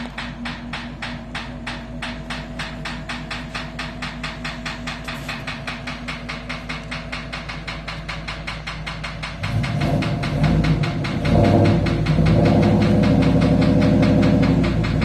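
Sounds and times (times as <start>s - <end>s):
fast even ticking: 5.5s - 15.0s
machine humming: 8.7s - 15.0s.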